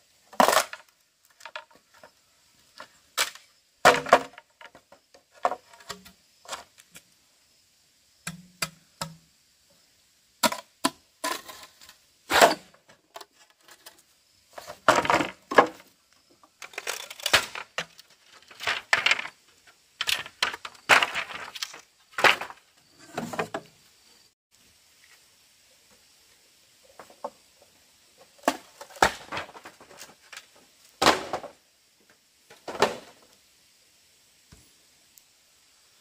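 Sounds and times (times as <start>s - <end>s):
wood cracks and knocks: 3.2s - 5.9s, 14.6s - 15.9s, 16.6s - 19.3s, 20.0s - 22.6s, 28.4s - 31.6s.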